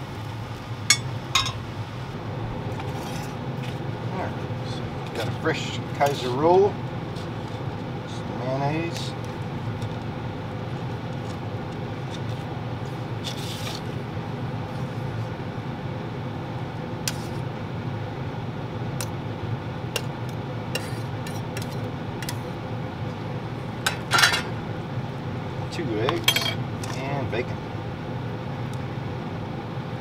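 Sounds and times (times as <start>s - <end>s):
steady low hum: 0.0s - 30.0s
knife scraping bread roll: 13.2s - 13.9s.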